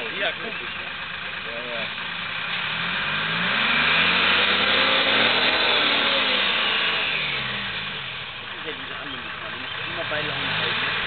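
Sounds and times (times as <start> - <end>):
diesel engine pulling hard: 0.0 - 11.0.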